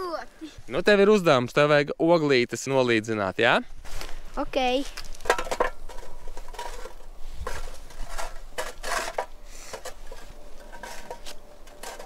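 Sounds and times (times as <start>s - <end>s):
grill grate scraping metal: 5.2s - 12.0s.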